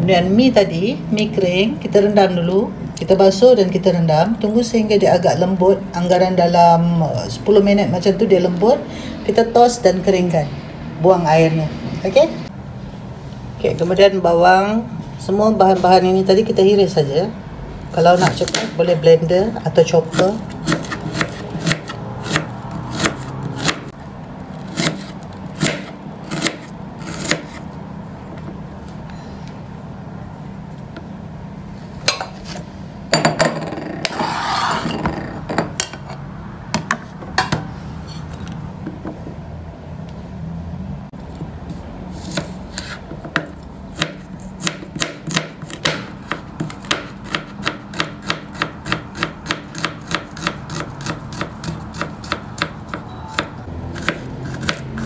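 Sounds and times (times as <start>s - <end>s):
knife scraping cutting board: 20.1s - 23.8s, 24.6s - 27.7s, 32.1s - 32.7s, 34.0s - 35.2s, 41.7s - 43.1s
knife chopping on plastic board: 20.1s - 23.9s, 42.3s - 55.0s.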